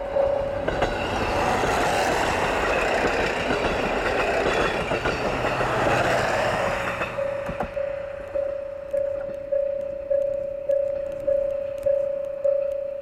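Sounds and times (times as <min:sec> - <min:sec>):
repeating bell tone: 0:00.0 - 0:01.1, 0:07.2 - 0:13.0
train passing at speed: 0:00.0 - 0:11.1
rail joints clicking: 0:00.0 - 0:12.8.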